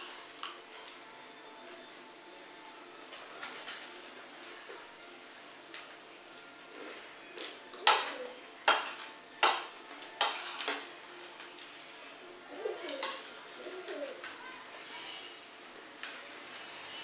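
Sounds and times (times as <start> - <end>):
spoons clinking on ceramic plates: 7.4 - 10.9.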